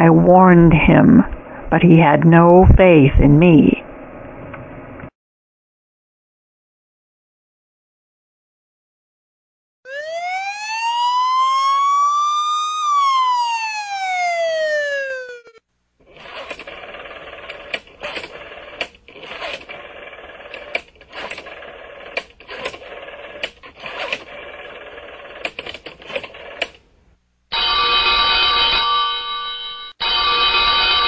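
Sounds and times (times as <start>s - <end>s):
rotary phone dial clicking and whirring: 16.0s - 26.9s
old telephone bell ringing: 27.5s - 31.0s.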